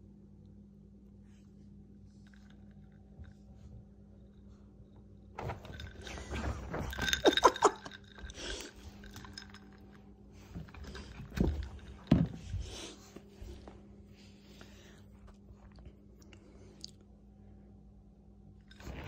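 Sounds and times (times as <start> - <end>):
glass handling noise: 5.4 - 12.7
ice clinking in a glass: 6.8 - 8.1.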